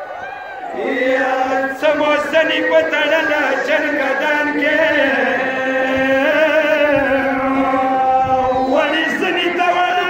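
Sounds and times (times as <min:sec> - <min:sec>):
voices chanting a lament: 0:00.5 - 0:10.0.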